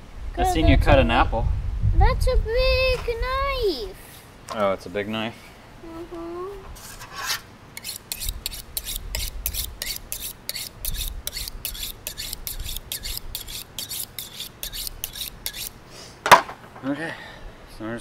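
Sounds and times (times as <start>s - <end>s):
knife sawing through fish: 6.8s - 15.8s.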